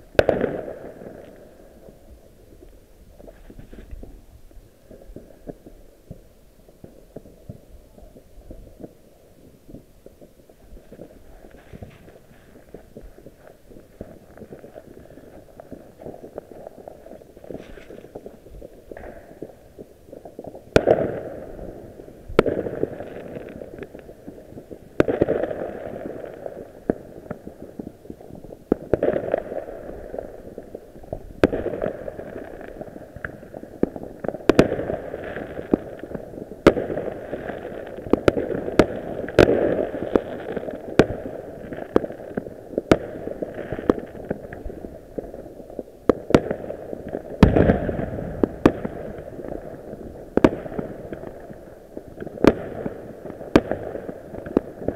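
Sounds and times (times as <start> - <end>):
fireworks bangs and pops: 0.0 - 54.9
fireworks crackling: 0.0 - 54.9
deep firework boom: 47.4 - 49.2.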